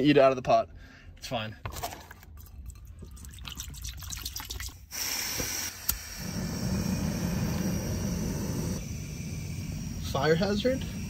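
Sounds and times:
water pouring into metal pot: 2.3 - 4.9
gas stove hissing: 4.9 - 11.0
burner rushing burn: 5.8 - 11.0.

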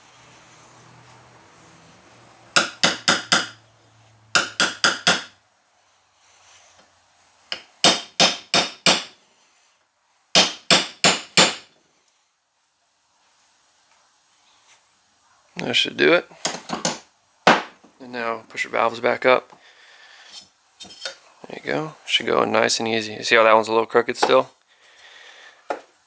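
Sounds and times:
hammer tapping metal: 2.6 - 3.6, 4.3 - 5.4, 7.5 - 9.1, 10.3 - 11.7.

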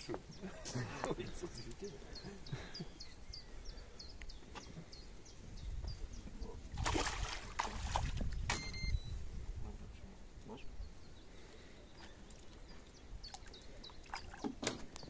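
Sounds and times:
fish thrashing and water splashing: 6.8 - 8.6, 13.3 - 14.8.

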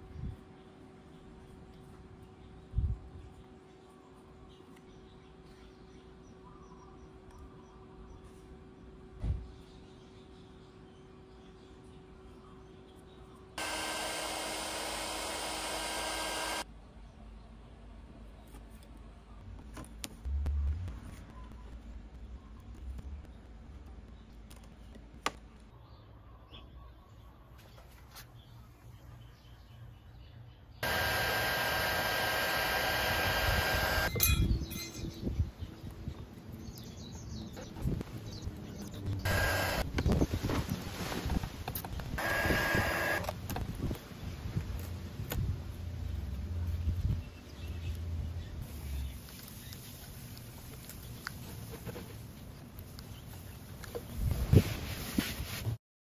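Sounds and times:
heat gun whining: 13.6 - 16.6, 30.8 - 34.2, 39.2 - 39.9, 42.2 - 43.4.

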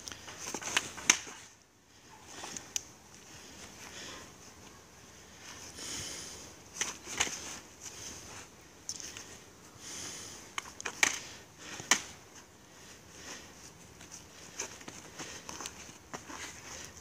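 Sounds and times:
soft rustling: 0.0 - 17.0.

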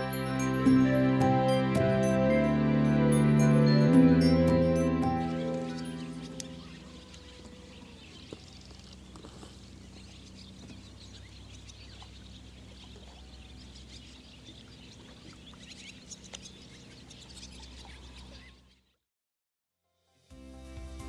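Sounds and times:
birds chirping: 3.1 - 19.0.

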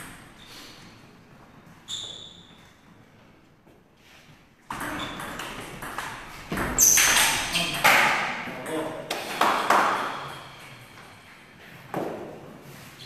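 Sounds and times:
table tennis ball pinging: 4.7 - 10.4.

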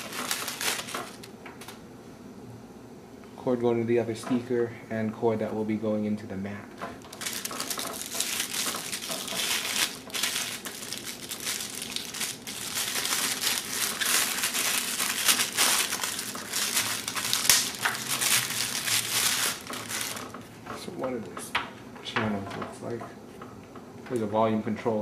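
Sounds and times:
plastic packaging crinkling: 0.0 - 1.8, 7.0 - 20.6.

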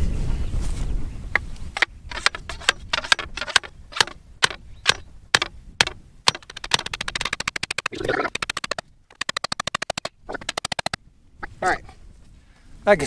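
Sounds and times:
hammer blows on wooden stake: 1.4 - 11.0.

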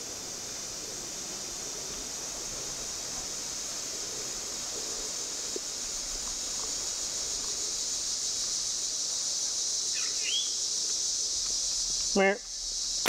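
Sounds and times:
insect chorus drone: 0.0 - 13.0
bird chirp: 9.9 - 10.6.

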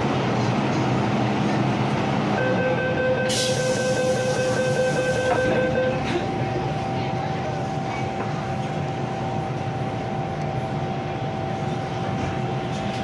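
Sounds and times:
stationary train hum: 0.0 - 13.0
train door warning tone: 2.3 - 6.3
train doors hissing shut: 3.2 - 6.2.

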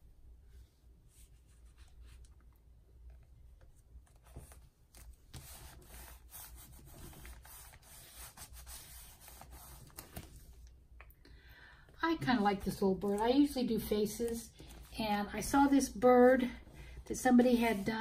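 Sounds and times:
glue stick rubbing on paper: 5.4 - 10.0
paper card handling: 9.2 - 10.6.

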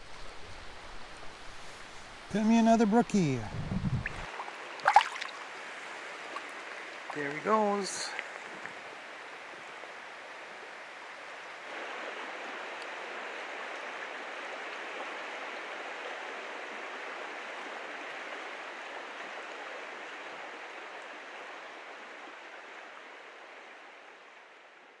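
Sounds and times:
river water rushing: 0.0 - 25.0.

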